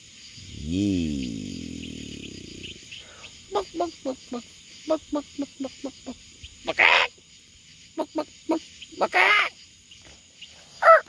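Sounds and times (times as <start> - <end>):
harsh poultry squawk: 6.6 - 7.2, 9.0 - 9.6, 10.8 - 11.0.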